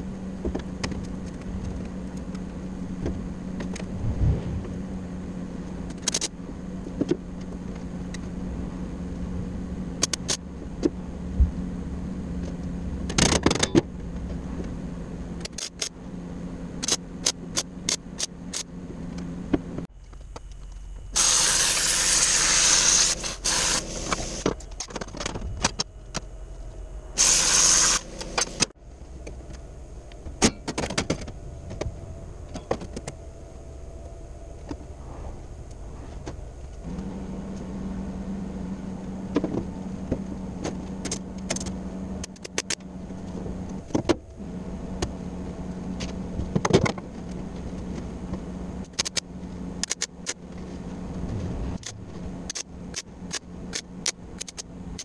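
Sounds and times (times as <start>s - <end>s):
electrical hum: 0.0s - 55.0s
loud hissing bursts: 21.2s - 24.4s, 27.2s - 28.2s.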